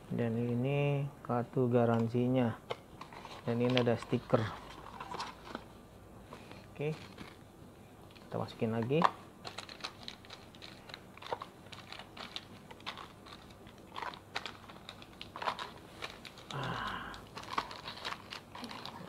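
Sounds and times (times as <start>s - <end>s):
plastic bags crinkling: 8.2s - 19.0s.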